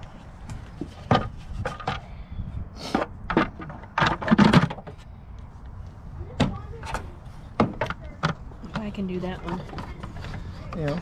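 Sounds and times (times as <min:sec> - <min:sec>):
plastic knocks and clatters: 0:00.5 - 0:02.0, 0:02.9 - 0:05.0.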